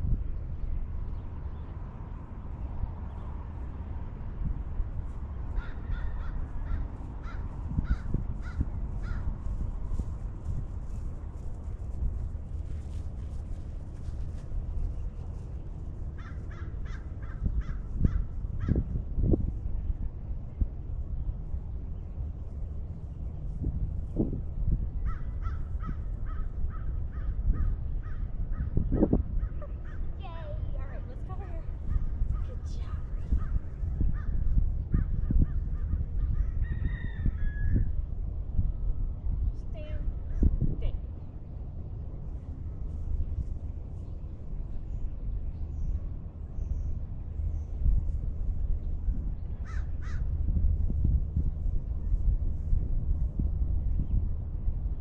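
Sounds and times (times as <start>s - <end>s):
wind rumble on microphone: 0.0s - 55.0s
bird calling: 5.5s - 9.4s
crow cawing: 5.6s - 9.4s, 16.2s - 18.8s, 49.6s - 50.3s.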